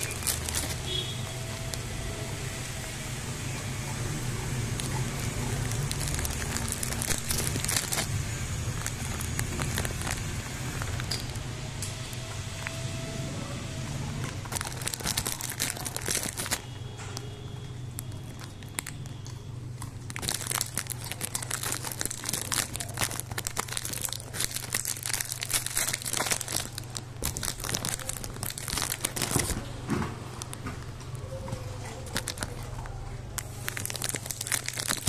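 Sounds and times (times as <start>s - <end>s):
dog chewing dry food: 3.9s - 11.5s, 14.2s - 16.7s, 18.0s - 29.6s.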